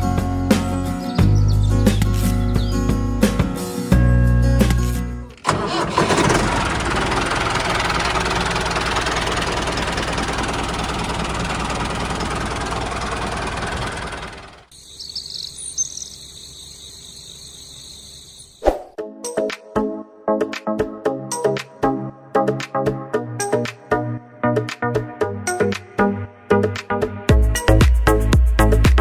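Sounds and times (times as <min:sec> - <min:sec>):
tractor engine running: 0:04.6 - 0:16.0.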